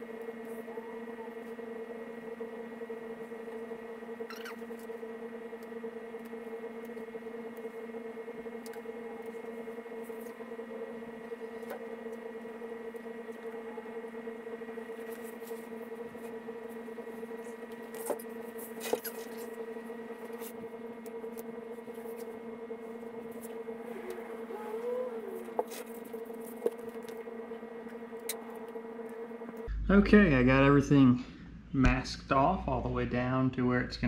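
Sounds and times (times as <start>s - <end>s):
steady hum: 0.0s - 34.0s.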